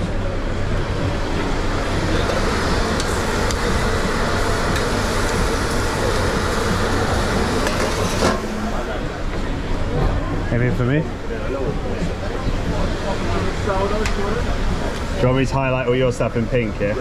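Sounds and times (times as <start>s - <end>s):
fan-like hum and hiss: 0.0s - 17.0s.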